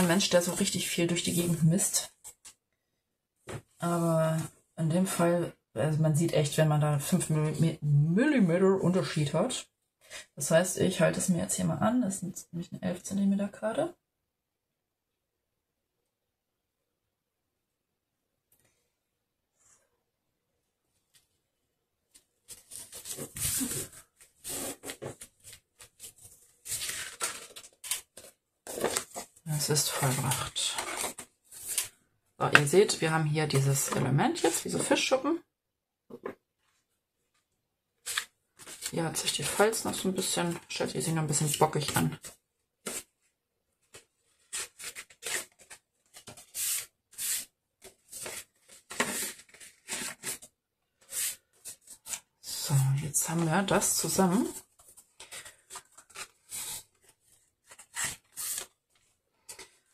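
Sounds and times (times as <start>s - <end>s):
paper and card rustling on table: 22.2s - 32.7s, 38.0s - 40.6s, 41.8s - 43.1s, 43.8s - 52.3s, 53.4s - 59.9s.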